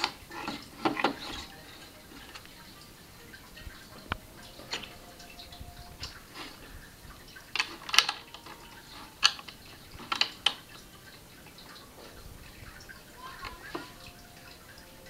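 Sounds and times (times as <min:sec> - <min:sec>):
plastic bricks clicking: 0:07.4 - 0:10.8.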